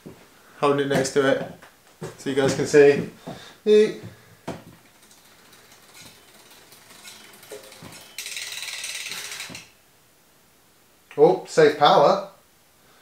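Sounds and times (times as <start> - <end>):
bicycle freehub ratchet ticking: 4.8 - 9.8.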